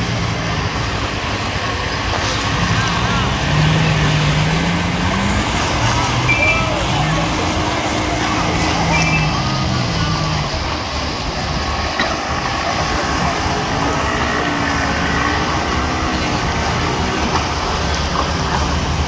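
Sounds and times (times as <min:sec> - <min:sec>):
crowd murmuring: 0:00.0 - 0:19.0
engine rumble: 0:00.0 - 0:19.0
short high beep: 0:06.2 - 0:06.8.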